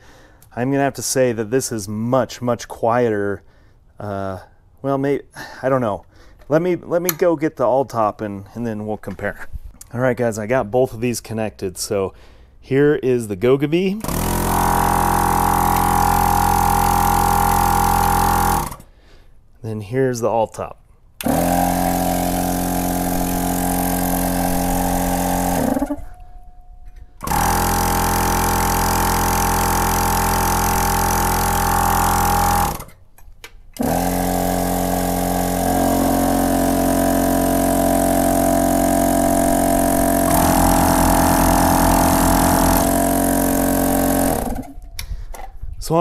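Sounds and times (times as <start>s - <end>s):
air compressor droning: 14.0s - 18.9s, 21.2s - 33.0s, 33.8s - 44.9s.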